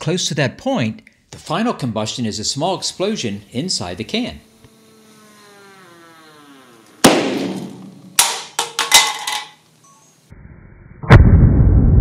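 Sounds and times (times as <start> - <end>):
sharp explosion bang: 7.0 - 8.0, 11.0 - 12.0
can clattering on table: 7.6 - 9.6.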